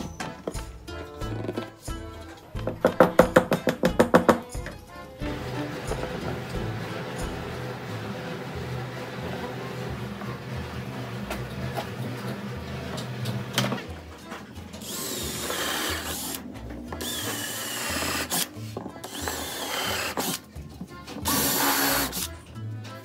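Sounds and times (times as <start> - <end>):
background music: 0.0 - 23.0
cordless drill boring into wood: 14.8 - 16.4, 17.0 - 20.4, 21.3 - 22.3.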